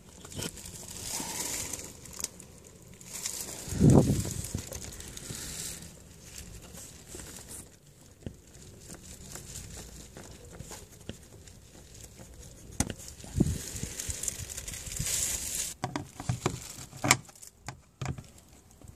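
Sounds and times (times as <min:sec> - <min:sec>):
plastic panel rustling: 0:00.0 - 0:18.9.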